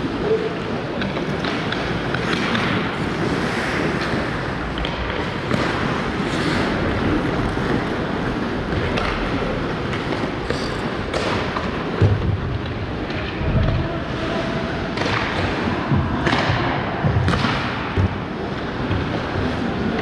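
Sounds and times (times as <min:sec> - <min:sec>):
steady rink noise: 0:00.0 - 0:20.0
hockey sticks and puck clacking: 0:00.1 - 0:13.8, 0:14.9 - 0:20.0
skate blades scraping ice: 0:00.9 - 0:11.9.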